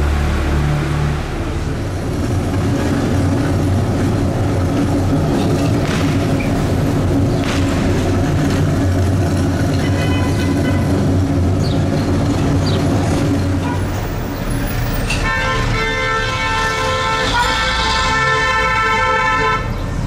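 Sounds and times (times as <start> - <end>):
low vehicle rumble: 0.0 - 18.5
vehicle horn: 9.8 - 11.2, 15.1 - 19.8.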